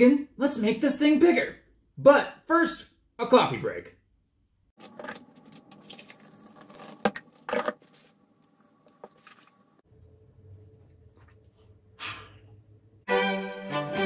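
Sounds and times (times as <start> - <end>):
coffee pouring into a mug: 5.0 - 7.2
low hum: 9.7 - 13.1.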